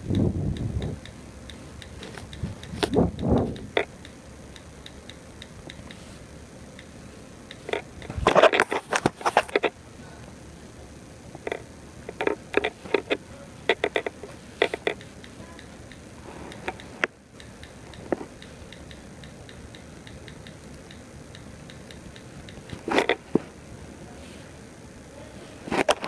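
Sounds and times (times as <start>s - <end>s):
faint ticks: 0.0s - 8.2s, 11.4s - 23.2s.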